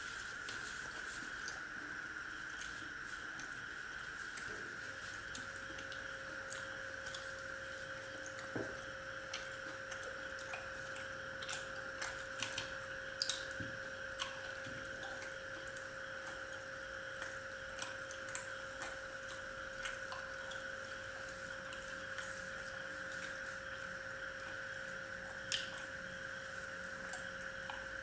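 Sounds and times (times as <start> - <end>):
steady hum: 0.0 - 28.0.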